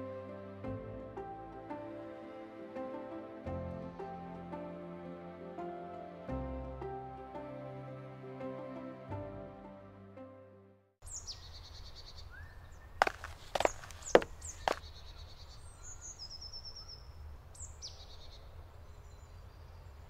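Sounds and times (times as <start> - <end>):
background music: 0.0 - 10.9
songbirds chirping and singing: 11.0 - 20.0.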